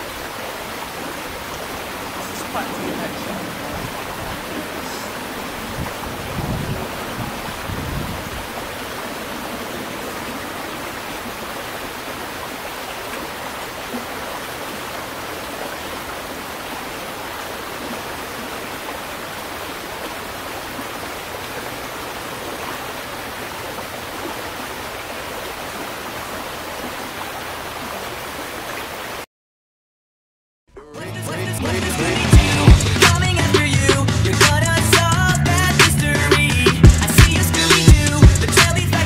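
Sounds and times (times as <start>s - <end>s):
flowing water rushing: 0.0s - 29.3s.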